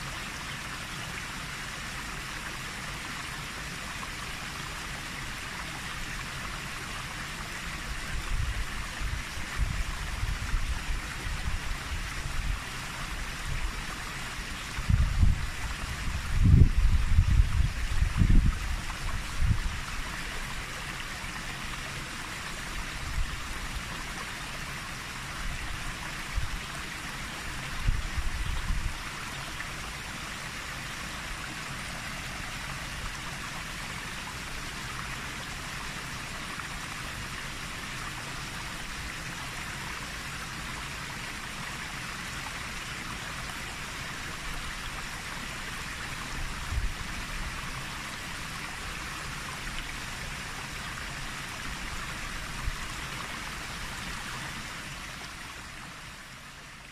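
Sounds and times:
wind rumble on microphone: 8.0s - 13.8s, 14.7s - 20.1s, 27.7s - 29.1s, 46.4s - 47.6s.

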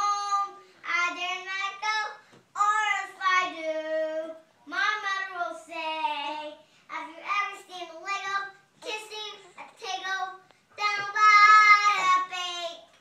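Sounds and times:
child singing: 0.0s - 13.0s
child breathing: 6.6s - 6.9s.

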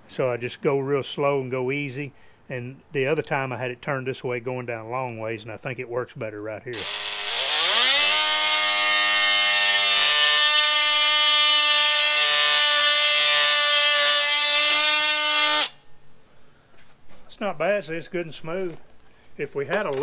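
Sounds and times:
oscillating multi-tool cutting stone: 6.8s - 15.9s.

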